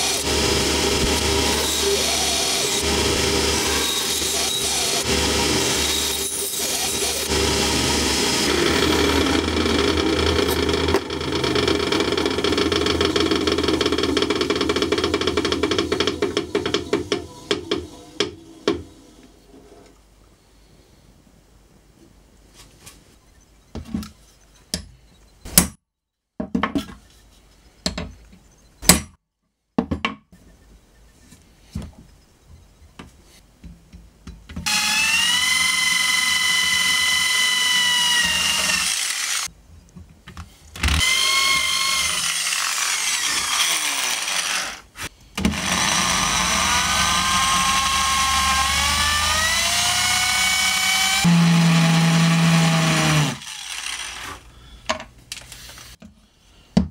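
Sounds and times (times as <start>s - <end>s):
rotary tool grinding steel: 0.0s - 14.2s, 34.7s - 39.5s, 40.9s - 54.5s
electric drill boring into wood: 0.0s - 16.6s, 34.6s - 39.5s, 40.8s - 54.5s
sharp knocks and clicks: 10.4s - 18.4s
power tool spinning up: 34.7s - 39.5s, 40.9s - 44.8s, 45.5s - 54.5s.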